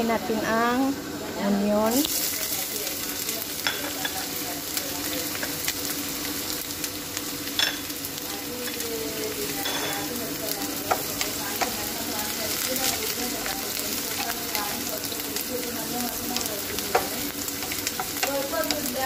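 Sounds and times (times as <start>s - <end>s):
onions sizzling in hot oil: 0.0s - 19.0s
utensils knocking against pan: 3.6s - 4.2s, 7.5s - 7.9s, 9.6s - 10.1s, 10.8s - 11.8s, 16.8s - 18.5s.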